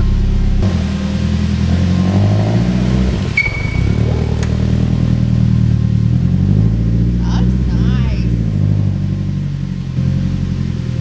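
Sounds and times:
car engine running at low revs: 0:00.0 - 0:11.0
raw leaky exhaust note: 0:00.0 - 0:11.0
short sharp squeak: 0:03.3 - 0:04.4.

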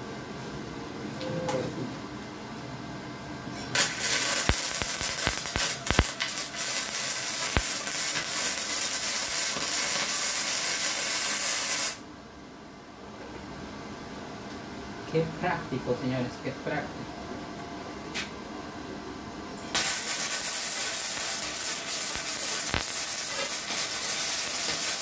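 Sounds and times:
welding arc crackling hiss: 0:03.7 - 0:12.0, 0:19.6 - 0:25.0
welding arc pops: 0:03.8 - 0:12.0, 0:19.7 - 0:25.0.

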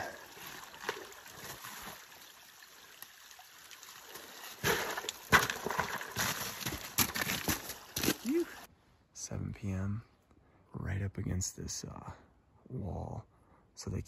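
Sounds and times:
meltwater trickling: 0:00.0 - 0:06.7
trekking poles striking ice: 0:04.6 - 0:08.3
crunching footsteps: 0:04.6 - 0:08.4.

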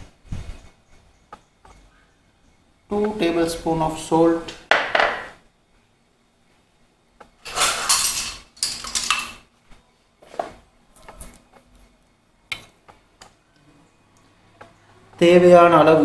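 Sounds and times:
utensils knocking and clinking: 0:04.7 - 0:05.3, 0:07.4 - 0:09.4
metal bowl clattering scrape: 0:07.4 - 0:09.4.

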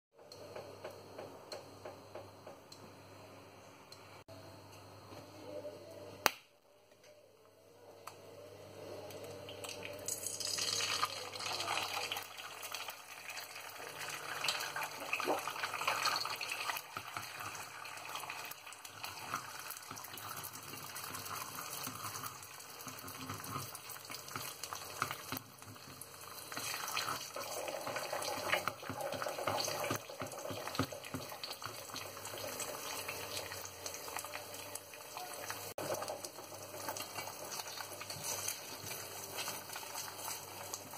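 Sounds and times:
egg sizzling in a pan: 0:08.8 - 0:40.9.

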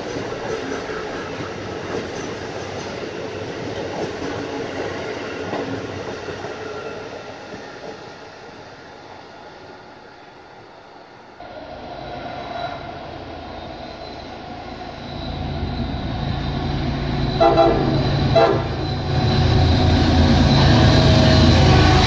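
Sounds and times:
diesel locomotive engine rumble: 0:11.4 - 0:22.0
train horn blasts: 0:17.3 - 0:18.9, 0:20.6 - 0:22.0.

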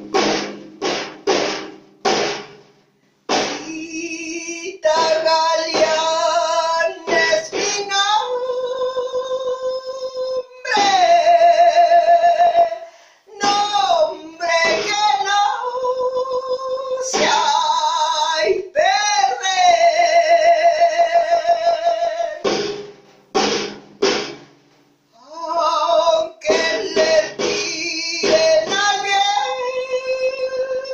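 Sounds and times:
woman singing with vibrato: 0:03.4 - 0:22.7, 0:25.2 - 0:30.9
singer breathing: 0:12.8 - 0:13.3.

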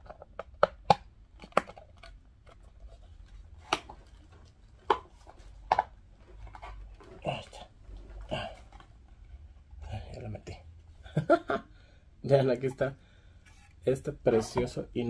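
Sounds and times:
hard plastic clacks: 0:00.0 - 0:02.7, 0:03.6 - 0:07.2
light plastic scraping: 0:01.4 - 0:09.4.

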